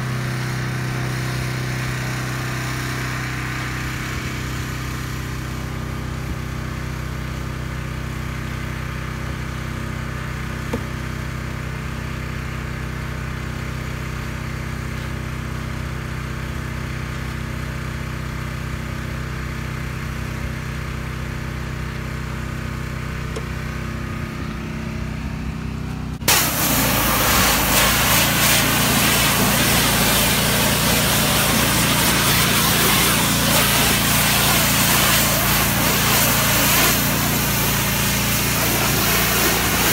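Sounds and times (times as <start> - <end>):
pressure washer engine running: 0.0 - 39.9
high-pressure water spray hissing: 26.3 - 39.9.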